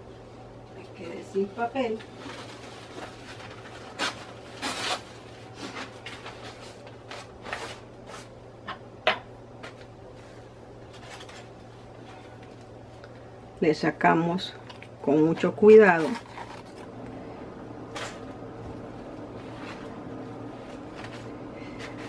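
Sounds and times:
aluminium foil crinkling: 1.4 - 8.3, 9.7 - 13.3, 14.4 - 22.0.

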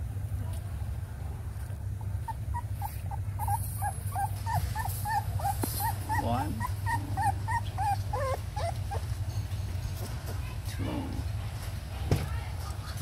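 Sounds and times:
steady low hum: 0.0 - 13.0
puppy whimpering: 1.9 - 9.2.

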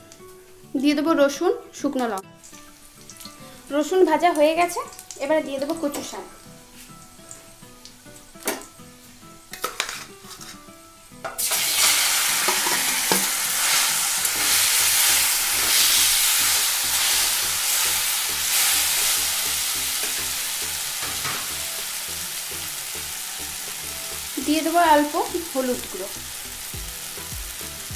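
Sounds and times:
greens sizzling in hot oil: 2.0 - 27.9
bowl and spatula scraping: 9.6 - 10.6.

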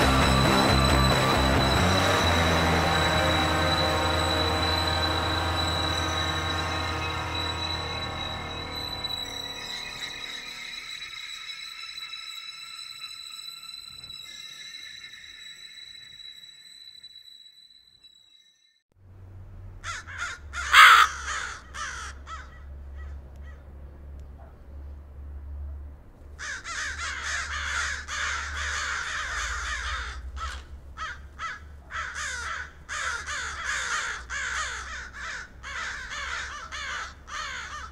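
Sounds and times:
crows cawing: 19.8 - 23.6, 26.4 - 37.9.

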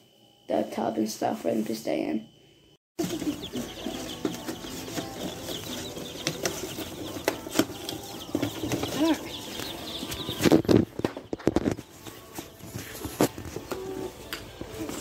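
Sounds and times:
chicks peeping: 3.0 - 15.0.

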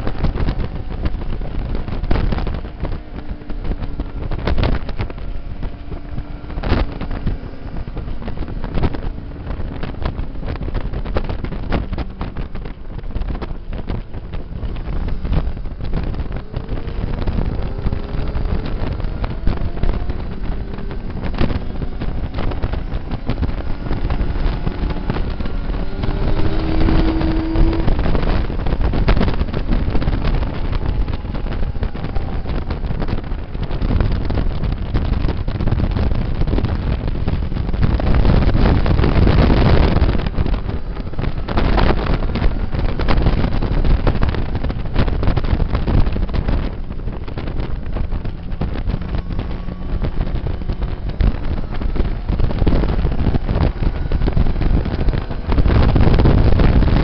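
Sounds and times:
motorcycle engine: 0.0 - 57.0
second motorcycle engine: 0.0 - 57.0
wind rush on microphone: 0.0 - 57.0.

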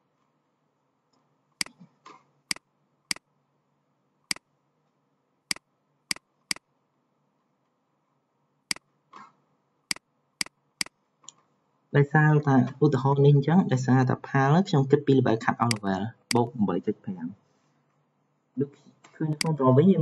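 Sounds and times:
faint steady background hum: 0.0 - 20.0
computer mouse clicking: 15.7 - 15.9.

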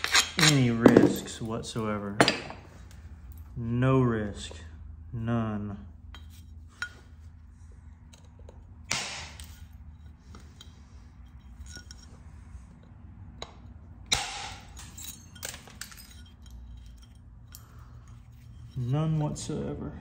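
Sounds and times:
short glassy ring: 9.4 - 12.3.

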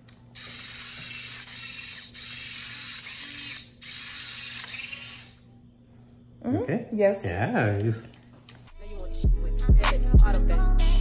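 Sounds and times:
motorized injector gun buzzing: 0.3 - 5.4.

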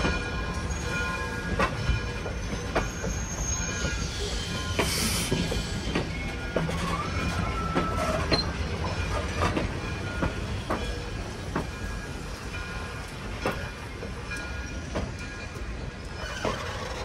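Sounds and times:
low train rumble: 0.0 - 17.0
train wheels clicking on rail joints: 0.0 - 17.0
wheel squeal: 2.4 - 8.6, 16.0 - 17.0.

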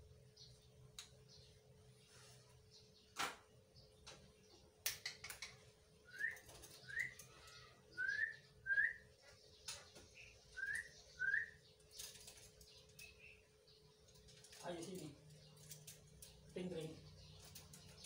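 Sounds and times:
sharp clicks: 4.8 - 5.6.

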